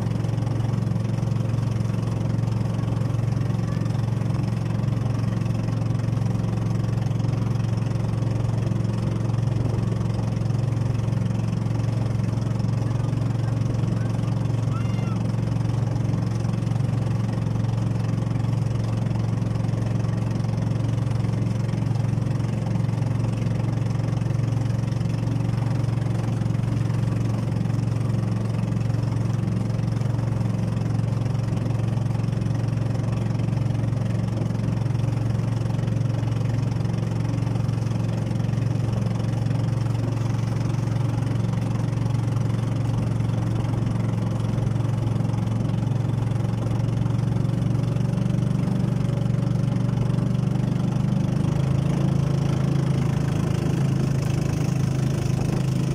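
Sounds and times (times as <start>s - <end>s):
boat engine droning: 0.0s - 55.9s.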